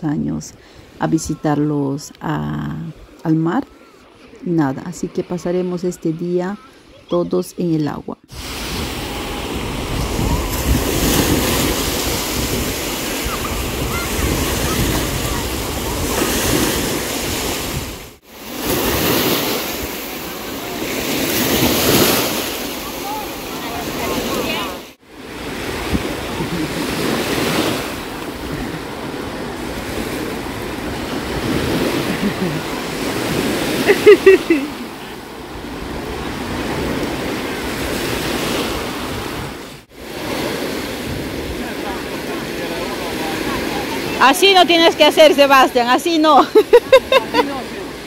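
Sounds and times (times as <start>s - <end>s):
waves breaking on sandy shore: 0.2s - 7.2s, 8.2s - 48.0s
sea surf washing: 8.2s - 48.0s
wind rumbling on microphone: 8.3s - 34.6s, 35.4s - 39.9s, 40.5s - 42.4s.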